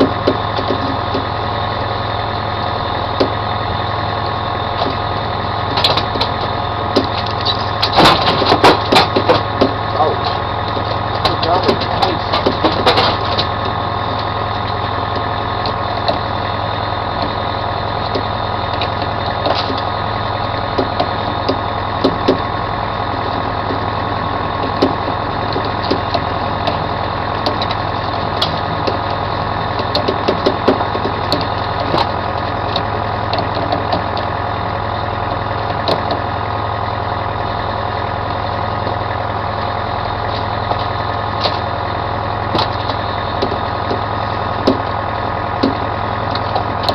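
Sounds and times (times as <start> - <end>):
gear knocking and clicking: 0.0 - 1.3, 5.7 - 16.3, 17.1 - 19.9, 20.6 - 22.5, 24.6 - 34.4, 35.3 - 36.3, 42.4 - 45.0, 45.6 - 46.9
boat engine running: 0.0 - 46.9.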